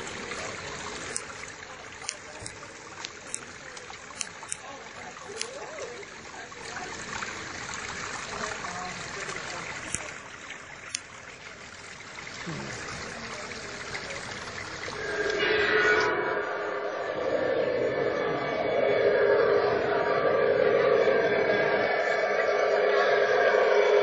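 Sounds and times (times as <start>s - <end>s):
water trickling down small waterfall: 0.0s - 15.6s
sound with steady tones: 14.9s - 24.0s.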